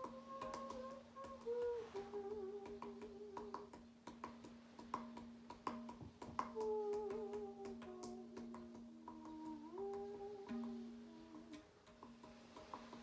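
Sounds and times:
person humming: 0.0s - 3.8s, 6.3s - 11.7s
tabla strokes: 0.0s - 13.0s.

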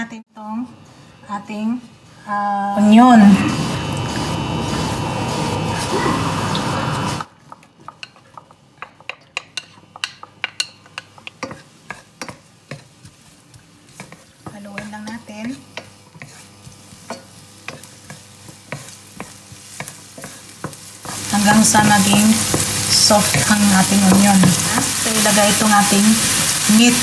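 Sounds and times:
onion sizzling in oil: 2.8s - 27.0s
wooden spatula scraping pan: 11.1s - 26.6s.

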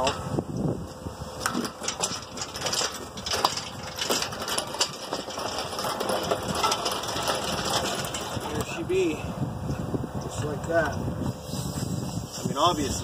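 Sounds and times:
hydraulic hoist clicking and clanking: 1.4s - 8.7s.

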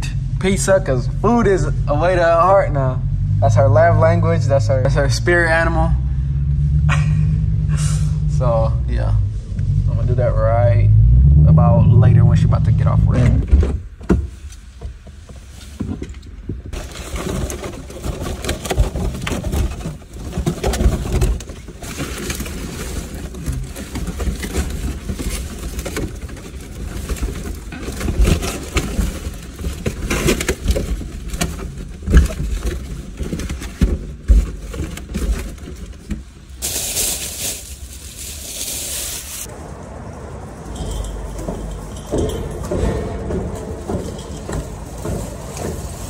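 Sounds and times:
foil balloons crinkling and squeaking: 16.7s - 39.5s, 44.1s - 46.0s.

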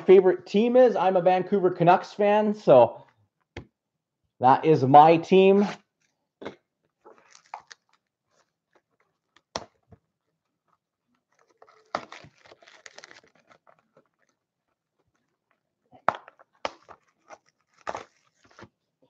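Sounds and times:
cellophane crinkling: 7.0s - 9.5s, 10.2s - 15.6s, 16.3s - 18.7s.

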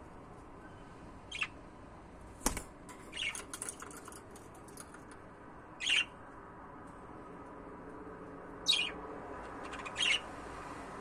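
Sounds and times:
budgerigar chirping: 1.3s - 1.6s, 5.8s - 6.2s, 8.6s - 9.0s, 9.6s - 10.3s.

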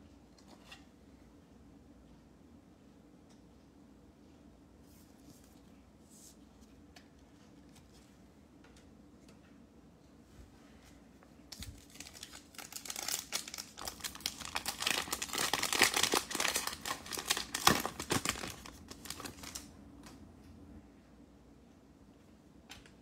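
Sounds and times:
foil wrapper tearing and crinkling: 11.6s - 19.7s.

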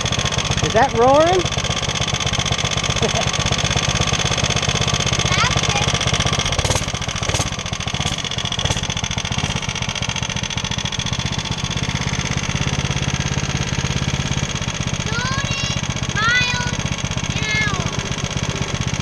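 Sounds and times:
small go-kart engine running: 0.0s - 19.0s
sharp ticks: 5.2s - 9.8s.

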